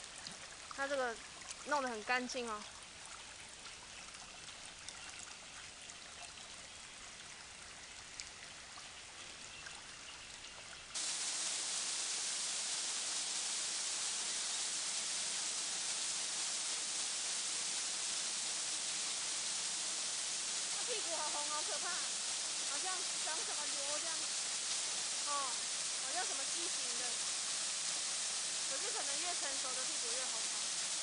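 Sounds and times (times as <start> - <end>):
stream trickling: 0.0 - 31.0
loud rushing hiss: 11.0 - 31.0.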